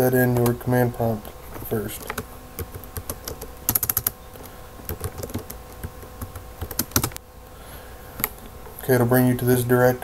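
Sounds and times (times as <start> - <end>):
keyboard keys clicking: 2.0 - 4.2, 4.9 - 7.2.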